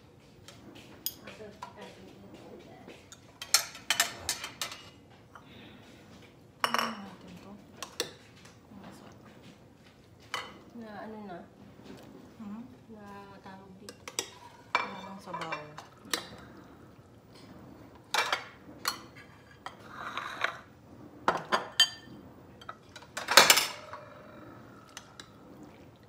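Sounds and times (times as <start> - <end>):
spoons clinking on ceramic plates: 0.9 - 2.2, 2.9 - 5.5, 6.6 - 8.4, 13.8 - 16.5, 21.3 - 24.0.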